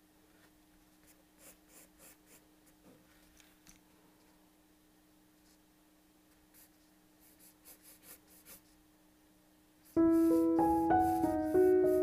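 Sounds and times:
pencil sketching on paper: 0:01.0 - 0:02.4, 0:06.5 - 0:08.8, 0:09.9 - 0:12.0
piano music: 0:10.0 - 0:12.0.

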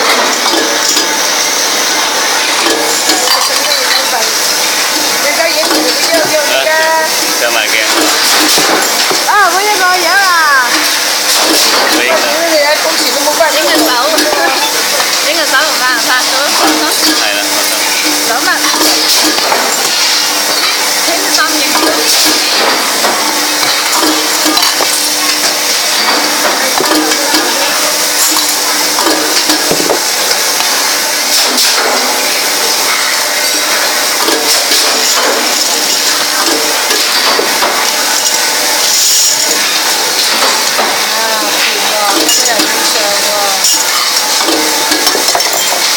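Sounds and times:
machine hum: 0:00.0 - 0:45.9
metal parts clinking: 0:34.2 - 0:40.8.

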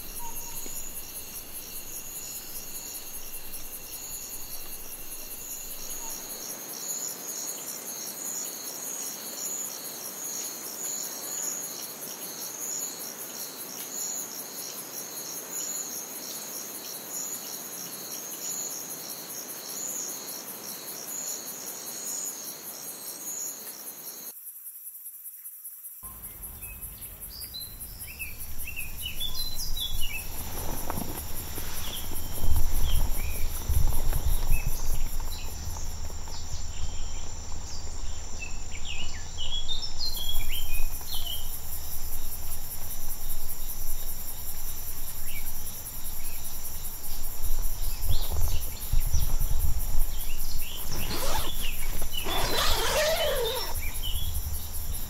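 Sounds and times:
birds calling: 0:00.0 - 0:06.4, 0:50.5 - 0:54.4
soft hiss: 0:00.0 - 0:08.2, 0:26.0 - 0:55.0
night insects chirping: 0:00.0 - 0:55.0
low rustling and thumps: 0:28.2 - 0:55.0.

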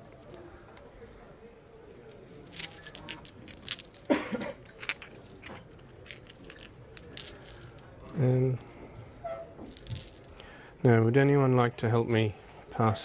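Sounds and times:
wire handling clicks and rustles: 0:01.7 - 0:10.4.

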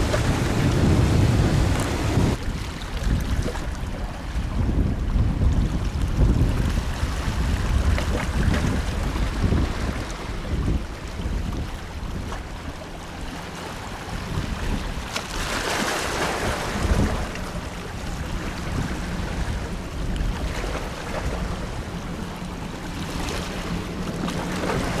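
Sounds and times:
waves washing: 0:00.0 - 0:25.0
wind noise on microphone: 0:00.0 - 0:25.0
distant boat engines droning: 0:08.8 - 0:25.0.

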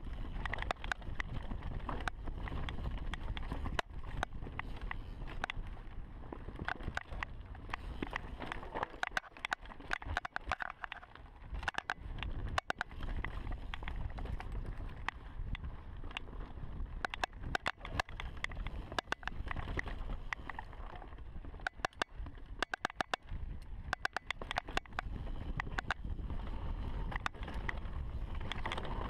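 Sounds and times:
low rumble of bike riding: 0:00.0 - 0:29.0
sharp clicks: 0:21.6 - 0:23.3, 0:23.9 - 0:26.0.

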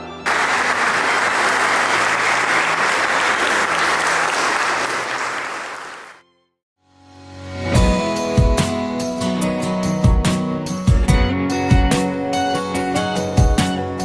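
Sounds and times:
crowd applauding: 0:00.2 - 0:06.2.

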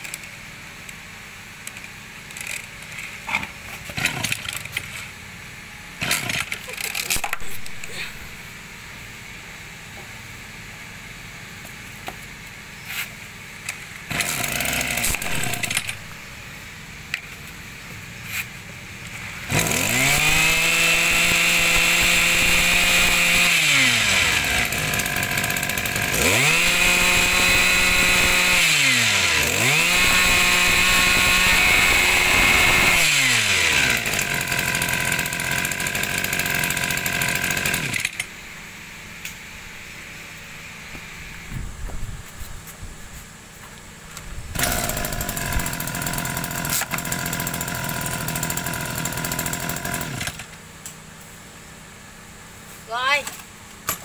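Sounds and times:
brush cutter engine revving: 0:02.2 - 0:05.1, 0:06.0 - 0:08.5, 0:13.6 - 0:16.4, 0:19.1 - 0:38.3, 0:44.5 - 0:50.6.

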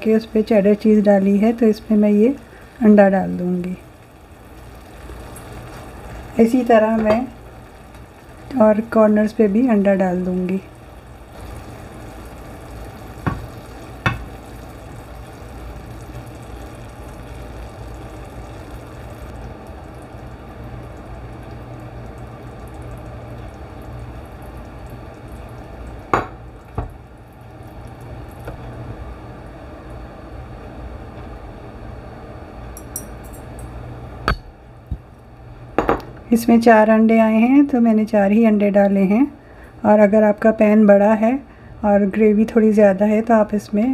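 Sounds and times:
sauce simmering in a frying pan: 0:00.0 - 0:34.2.

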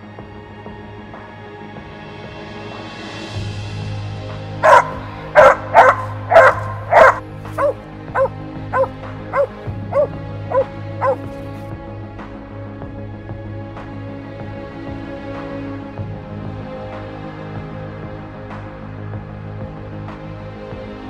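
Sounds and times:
dog barking: 0:04.6 - 0:11.4.

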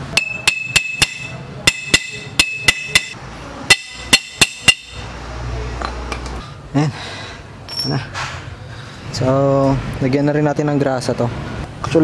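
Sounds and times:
hammer tapping steel pipe: 0:00.1 - 0:05.0.

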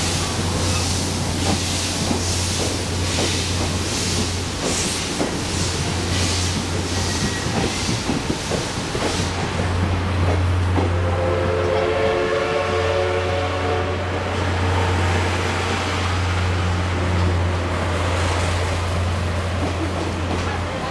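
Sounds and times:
train wheels clicking on rail joints: 0:00.0 - 0:12.2, 0:16.7 - 0:20.9
diesel locomotive drone: 0:00.0 - 0:20.9
train whistle: 0:10.9 - 0:14.4.

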